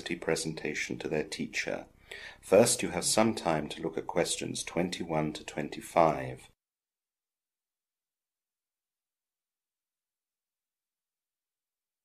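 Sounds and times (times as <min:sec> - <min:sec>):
faint even hiss: 0:00.0 - 0:06.5.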